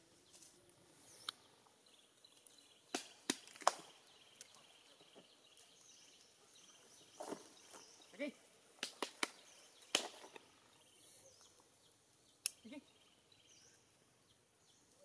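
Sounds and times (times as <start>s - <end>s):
dry wood clicks and snaps: 2.3s - 6.3s, 8.8s - 10.5s.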